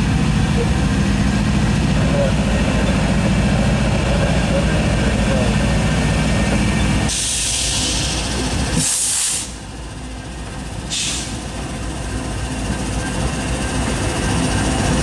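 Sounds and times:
diesel locomotives rumbling: 0:00.0 - 0:15.0
compressed air hissing: 0:07.1 - 0:09.6, 0:10.9 - 0:11.4.

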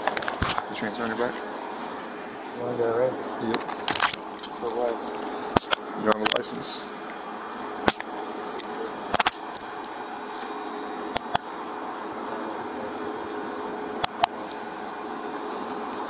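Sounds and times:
clothing rubbing on microphone: 0:00.0 - 0:02.6
steady background noise: 0:00.0 - 0:16.0.

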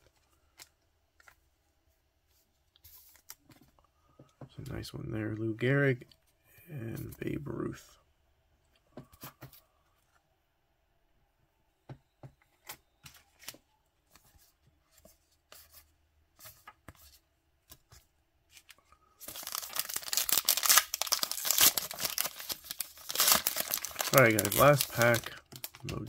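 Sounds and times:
foil wrapper tearing and crinkling: 0:19.2 - 0:25.9.

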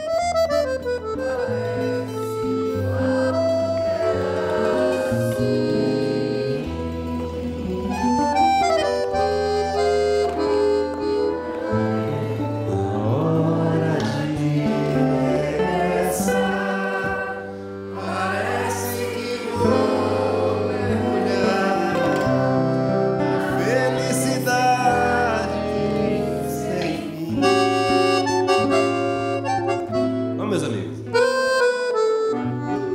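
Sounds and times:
acoustic guitar: 0:00.0 - 0:32.9
mandolin: 0:00.0 - 0:32.9
piano accordion playing chords: 0:00.0 - 0:32.9
man singing: 0:12.0 - 0:17.4, 0:18.0 - 0:28.2.

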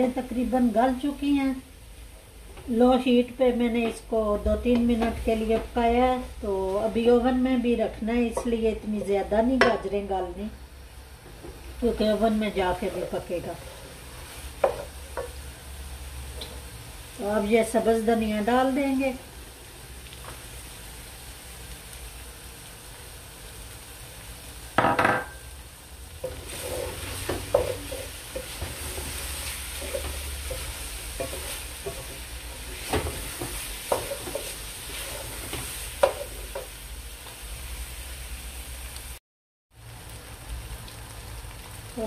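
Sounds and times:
meat sizzling in a pot: 0:00.0 - 0:42.0
wooden spatula tapping a pot: 0:14.6 - 0:15.4.

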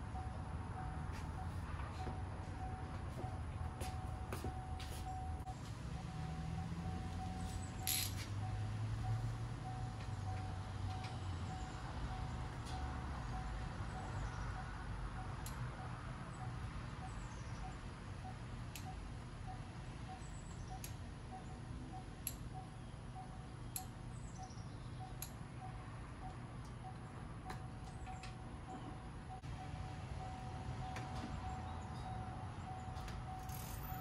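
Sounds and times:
wrench clicking on metal fitting: 0:07.9 - 0:08.2.

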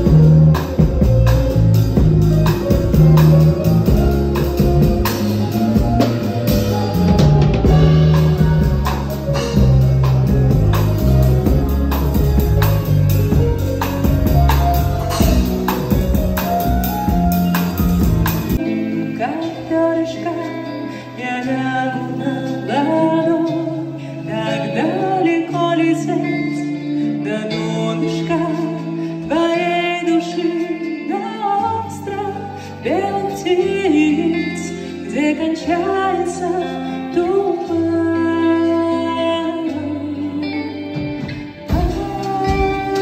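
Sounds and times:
bass line: 0:00.0 - 0:18.6
electric keyboard: 0:00.0 - 0:43.0
woman singing into a microphone: 0:18.6 - 0:43.0.

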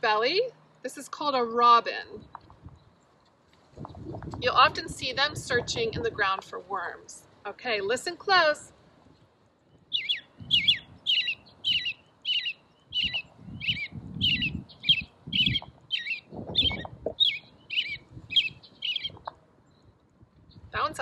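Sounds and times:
bird song through small speaker: 0:02.0 - 0:03.1, 0:09.6 - 0:21.0.

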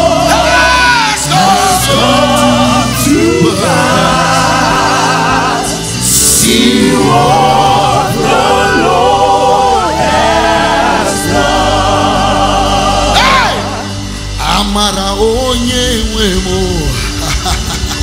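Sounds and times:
backing singers: 0:00.0 - 0:15.0
man singing lead: 0:00.0 - 0:17.2
band accompaniment: 0:00.0 - 0:18.0.

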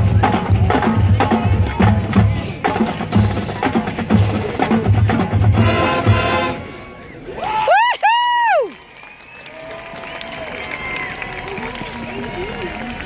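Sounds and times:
bass drums beating: 0:00.0 - 0:06.5
marching band brass: 0:00.0 - 0:07.1.

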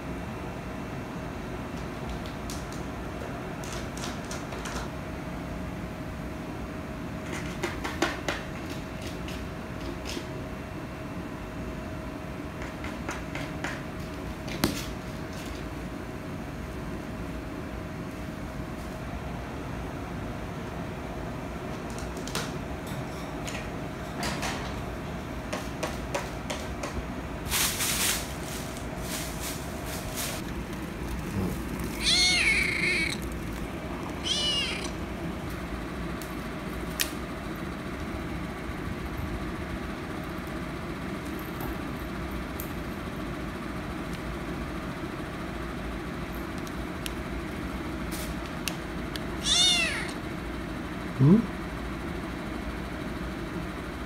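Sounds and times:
background hum: 0:00.0 - 0:54.0
kitten meowing: 0:31.3 - 0:33.3, 0:34.0 - 0:35.0, 0:49.4 - 0:50.2.

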